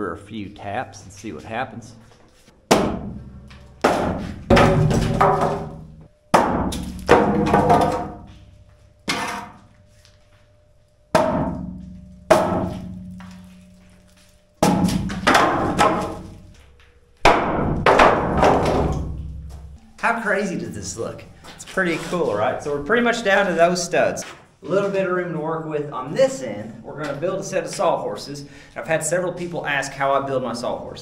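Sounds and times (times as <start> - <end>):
hammer knocking wooden formwork: 2.7 - 8.2, 11.2 - 13.2, 14.6 - 16.3, 17.2 - 19.6.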